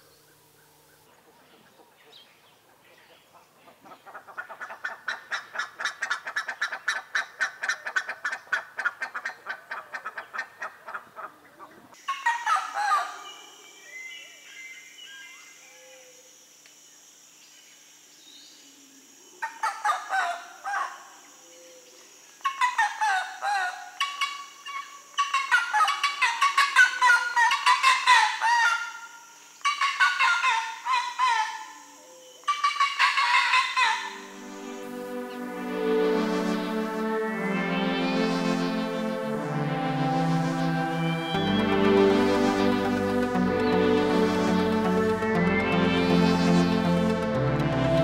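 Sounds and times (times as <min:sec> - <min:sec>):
birds honking: 0:32.5 - 0:48.0
steady high whine: 0:34.1 - 0:48.0.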